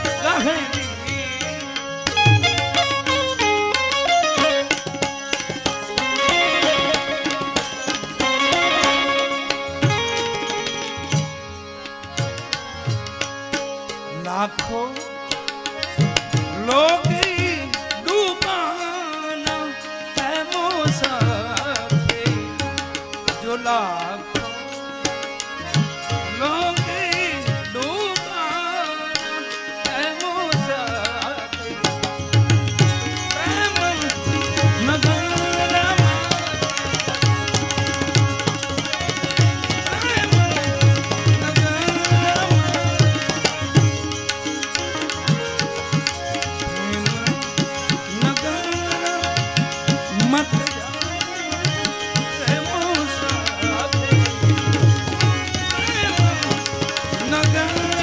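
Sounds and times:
harmonium: 0:00.0 - 0:58.0
hand drums: 0:31.8 - 0:58.0.

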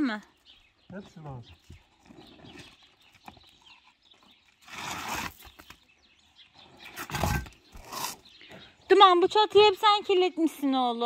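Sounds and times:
roofing membrane scraping: 0:04.6 - 0:05.7.

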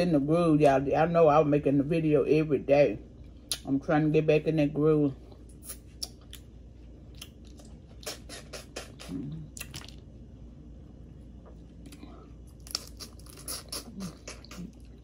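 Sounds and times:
chewing: 0:07.1 - 0:10.0, 0:11.4 - 0:15.0.

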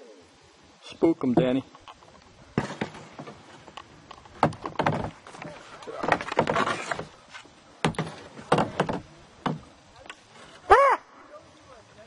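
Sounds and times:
knocks and rattles from a kayak: 0:01.4 - 0:10.1
paddle bumping against hull: 0:02.0 - 0:10.5.

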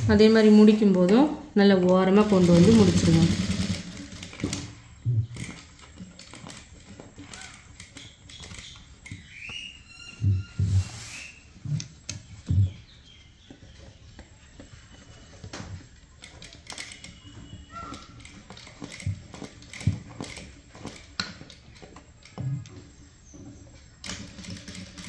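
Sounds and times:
sewing machine clicking: 0:00.6 - 0:09.0, 0:15.4 - 0:22.4, 0:24.0 - 0:25.0.

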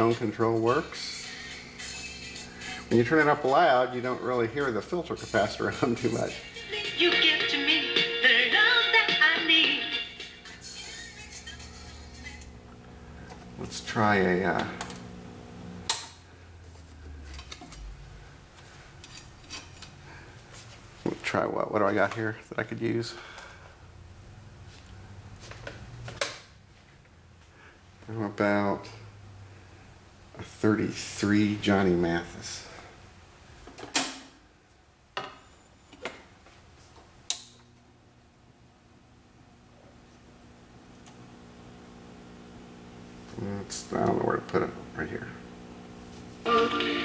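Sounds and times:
record set on turntable: 0:00.0 - 0:16.0, 0:39.8 - 0:47.0
faint amplifier hum: 0:00.0 - 0:47.0
amplifier hum: 0:11.7 - 0:18.5, 0:37.2 - 0:47.0.

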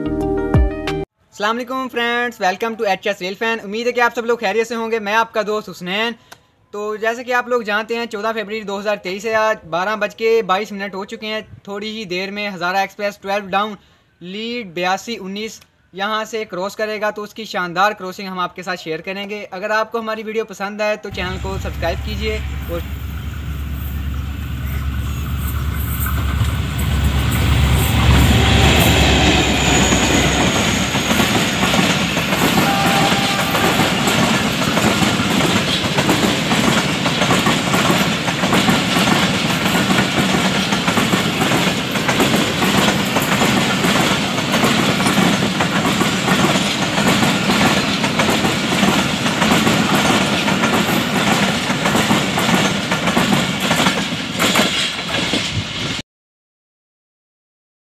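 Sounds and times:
diesel locomotive engine: 0:21.1 - 0:56.0
train wheels clacking on rails: 0:21.1 - 0:56.0.

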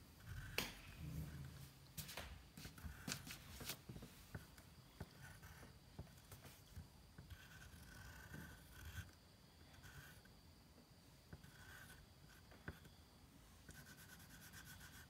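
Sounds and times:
pencil scratching on paper: 0:00.2 - 0:01.6, 0:02.6 - 0:10.3, 0:11.4 - 0:12.9, 0:13.6 - 0:15.0.

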